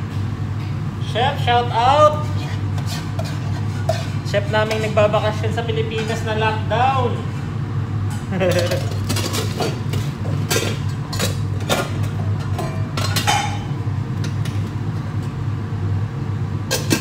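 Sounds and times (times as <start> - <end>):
kitchen machinery humming: 0.0 - 17.0
pans and utensils clinking: 2.8 - 5.0, 8.4 - 14.7, 16.7 - 17.0.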